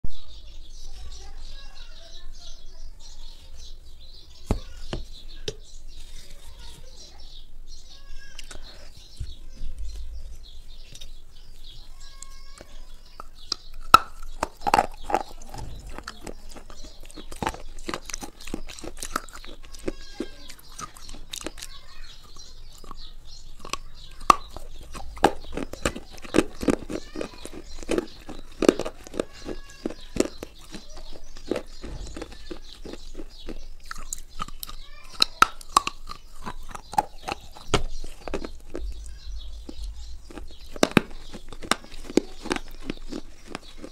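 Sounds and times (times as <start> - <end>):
person chewing crunchy food: 10.6 - 43.9.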